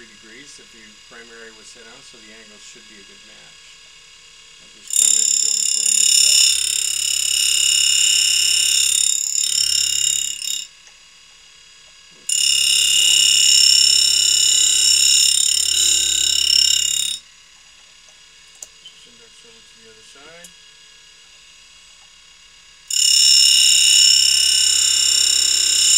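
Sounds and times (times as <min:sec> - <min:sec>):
grinding wheel whining: 0:04.6 - 0:10.9, 0:11.8 - 0:25.9.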